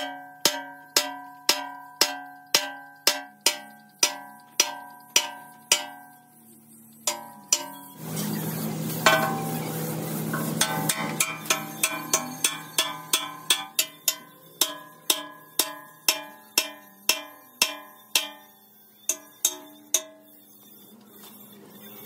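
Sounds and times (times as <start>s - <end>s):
sledgehammer striking steel: 0.0s - 6.1s, 7.1s - 8.0s, 9.0s - 18.5s
steady low hum: 0.0s - 22.0s.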